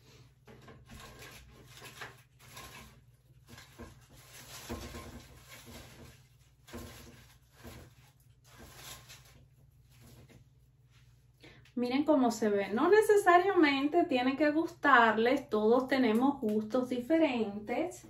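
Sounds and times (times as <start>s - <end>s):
plastic foliage rustling: 0.8s - 10.3s.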